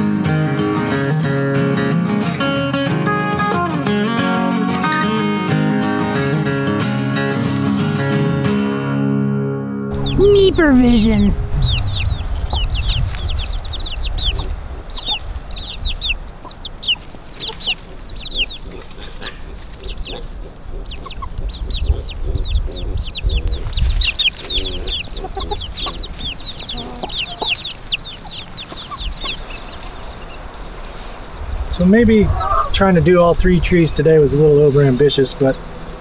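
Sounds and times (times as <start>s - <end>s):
chicks peeping: 9.9s - 36.0s
hens clucking: 9.9s - 36.0s
steady low rumble: 9.9s - 36.0s.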